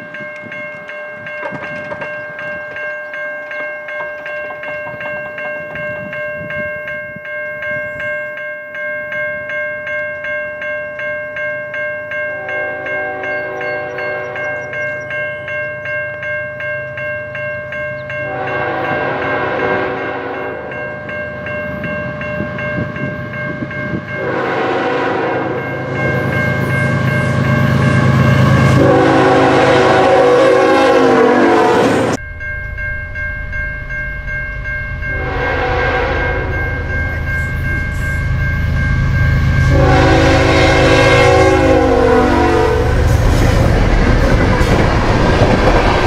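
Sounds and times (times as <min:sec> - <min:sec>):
bell-like ringing: 0:00.0 - 0:29.4, 0:32.1 - 0:41.8
train horn blasts: 0:12.4 - 0:14.8, 0:18.3 - 0:20.8, 0:24.1 - 0:32.2, 0:35.0 - 0:38.3, 0:39.4 - 0:43.6.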